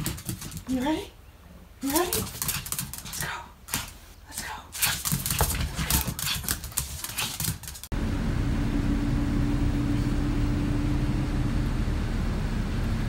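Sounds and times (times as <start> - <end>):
dog claws clicking on floor: 0.0 - 0.8, 1.8 - 7.9
low rumble and hum: 7.9 - 13.0.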